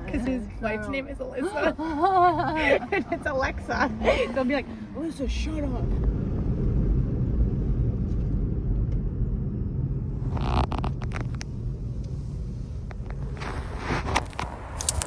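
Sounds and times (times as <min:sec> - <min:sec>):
car cabin low rumble: 0:00.0 - 0:15.0
scratchy noise with clicks: 0:10.2 - 0:11.5, 0:12.9 - 0:15.0.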